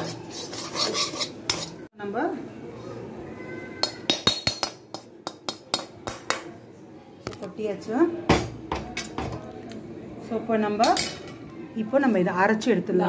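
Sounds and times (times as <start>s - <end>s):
metal spoon scraping frying pan: 0.0s - 1.9s
spoon tapping steel plate: 3.8s - 6.4s.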